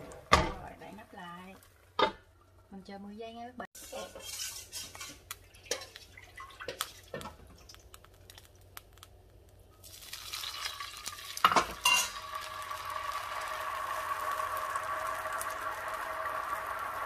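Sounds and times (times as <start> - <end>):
utensils tapping frying pan: 3.8 - 7.4, 10.3 - 12.7
batter sizzling in hot pan: 3.8 - 17.0.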